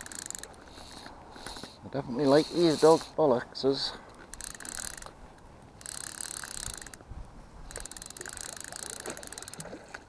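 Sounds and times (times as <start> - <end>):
fishing reel ratchet clicking: 0.0 - 3.1, 4.1 - 5.1, 5.8 - 7.0, 7.7 - 9.7.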